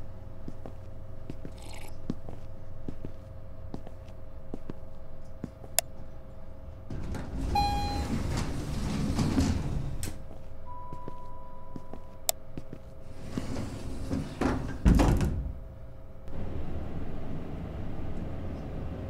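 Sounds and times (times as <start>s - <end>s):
steady hum: 0.0s - 19.0s
elevator doors sliding open: 6.8s - 10.3s, 13.1s - 15.7s
elevator chime: 7.1s - 10.0s, 10.6s - 12.3s.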